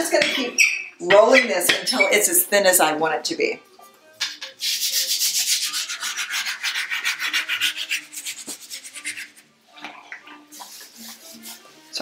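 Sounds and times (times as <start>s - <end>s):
rhythmic dry rubbing: 4.2s - 9.5s, 10.5s - 12.0s.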